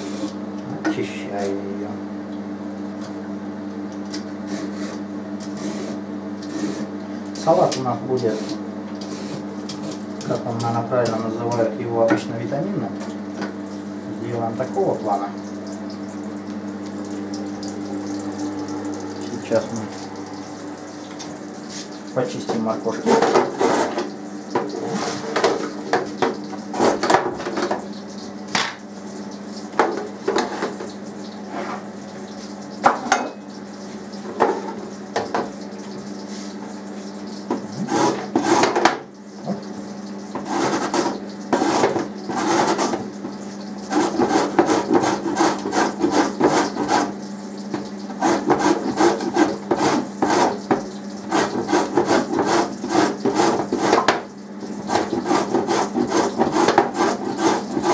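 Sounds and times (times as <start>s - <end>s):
carrot grated on metal grater: 37.8s - 38.9s, 40.4s - 43.0s, 43.8s - 47.2s, 48.2s - 54.1s, 54.8s - 57.9s.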